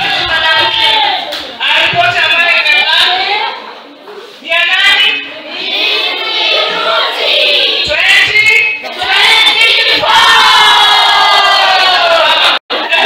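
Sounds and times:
girls singing in chorus: 5.4 - 7.9, 8.9 - 11.4.

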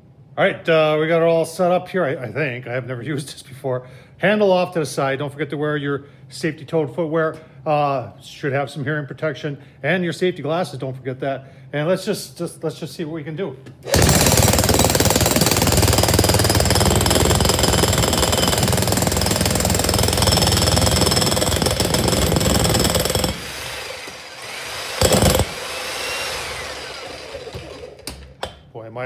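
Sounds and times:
demolition hammer chiselling concrete: 13.9 - 28.1.

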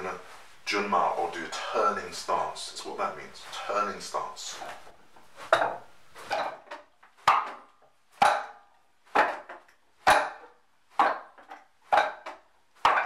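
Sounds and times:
sharp wooden knocks: 5.4 - 13.0.

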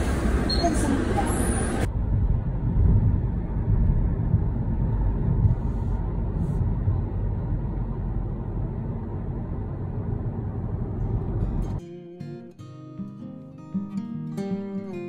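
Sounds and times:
bus engine and road rumble: 0.0 - 11.8.

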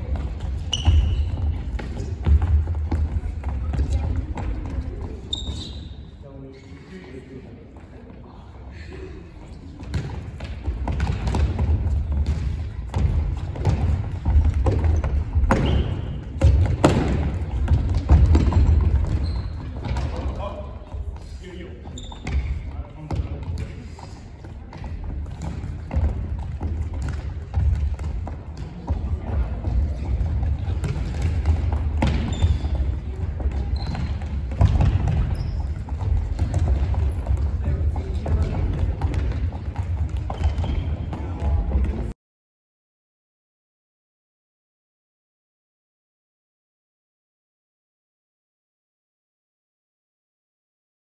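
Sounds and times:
sneaker squeaks: 0.0 - 6.9, 9.6 - 23.8, 29.2 - 41.4
ball bouncing on wooden floor: 9.8 - 20.4, 24.4 - 42.1.

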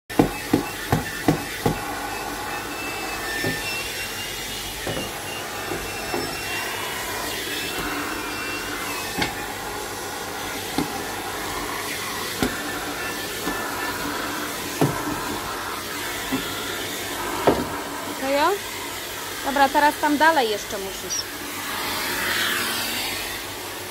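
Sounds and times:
vacuum cleaner on carpet: 0.1 - 23.9.

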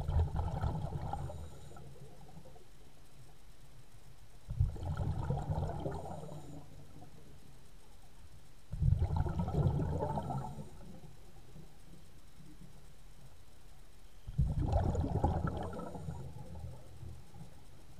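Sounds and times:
underwater bubbles from diver exhaling: 0.0 - 1.8, 4.5 - 6.6, 8.7 - 11.0, 14.3 - 16.6.

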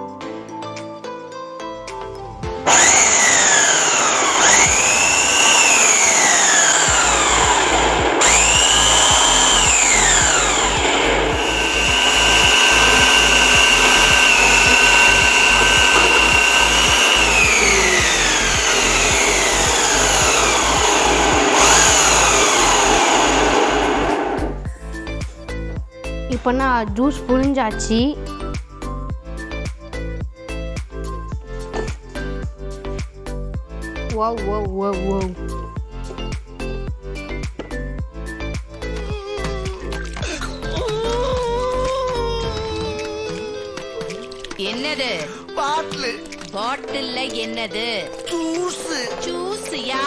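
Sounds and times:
citrus juicer motor whining: 2.7 - 24.7.

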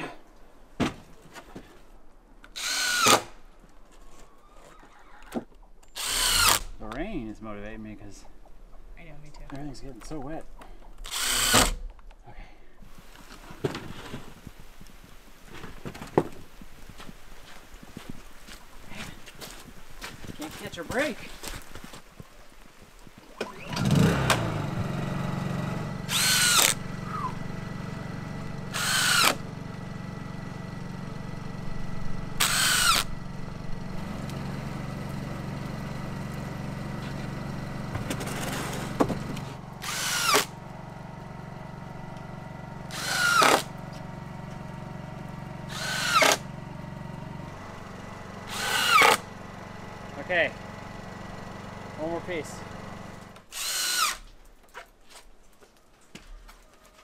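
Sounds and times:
power drill driving screws: 2.5 - 3.4, 5.3 - 6.8, 11.0 - 11.9, 26.0 - 27.3, 28.7 - 29.4, 32.3 - 33.1, 38.1 - 40.6, 42.9 - 43.8, 45.7 - 46.5, 48.4 - 49.3, 52.0 - 54.4
low engine hum: 23.4 - 53.5.

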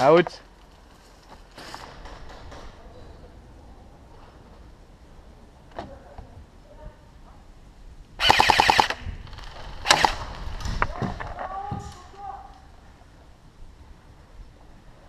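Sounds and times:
airsoft rifle firing: 8.2 - 9.0, 9.8 - 10.2.

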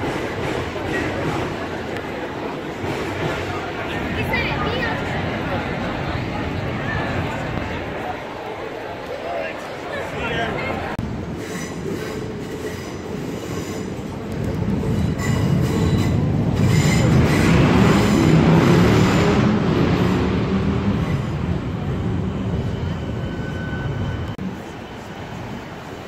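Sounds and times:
train wheels rumbling on rails: 0.0 - 26.0
metallic wheel squeal: 22.3 - 24.4.

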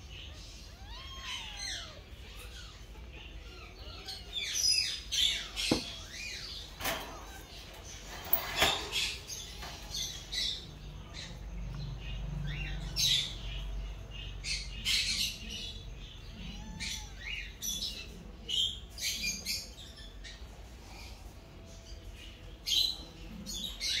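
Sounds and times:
kittens squeaking: 0.0 - 11.5, 14.8 - 19.5.

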